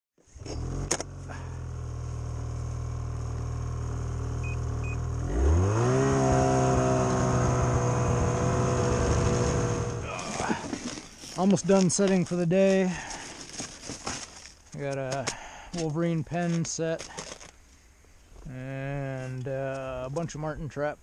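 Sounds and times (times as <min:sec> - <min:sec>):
snowmobile engine revving: 0:00.3 - 0:10.7.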